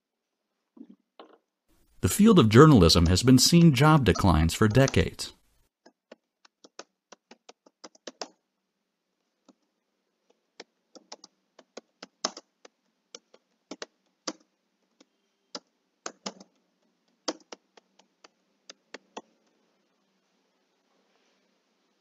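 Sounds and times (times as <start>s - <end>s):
keyboard typing: 2.0s - 5.3s, 10.6s - 19.6s.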